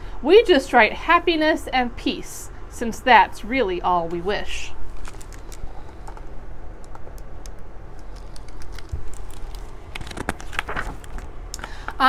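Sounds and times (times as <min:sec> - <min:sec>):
book being handled clicks: 0:05.0 - 0:11.9.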